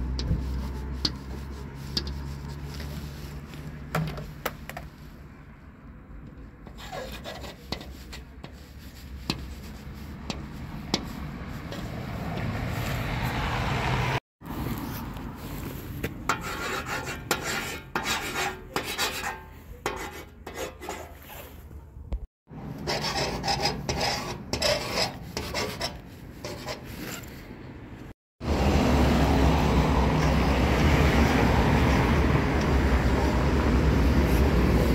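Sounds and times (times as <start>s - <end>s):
pen tip scratching hard surfaces: 22.8s - 27.4s.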